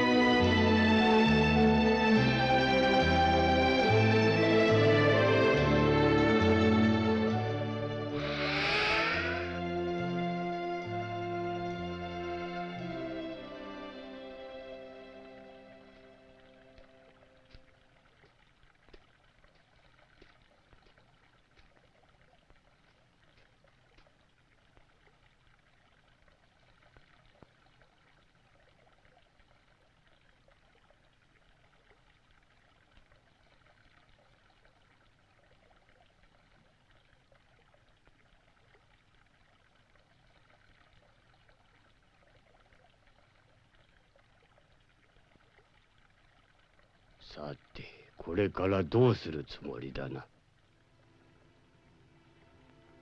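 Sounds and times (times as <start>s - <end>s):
faint steady hiss: 5.4s - 53.0s
faint ticks: 16.7s - 48.1s.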